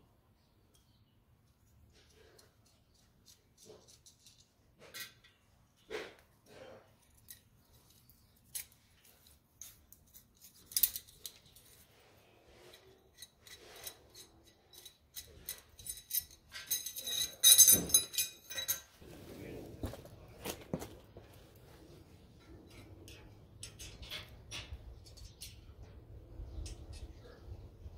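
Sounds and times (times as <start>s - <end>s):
steel rods clinking: 12.6s - 19.0s
light metal clicks and taps: 22.4s - 26.0s.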